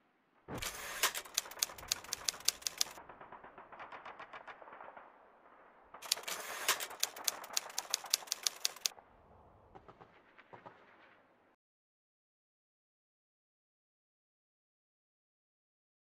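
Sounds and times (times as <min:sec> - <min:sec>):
typewriter keystroke clacks: 0:00.6 - 0:03.0, 0:06.0 - 0:08.9.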